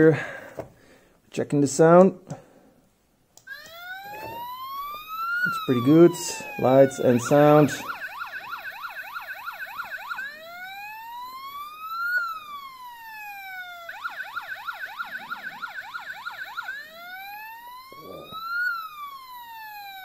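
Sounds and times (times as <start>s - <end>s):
toy electronic siren: 3.4s - 20.0s.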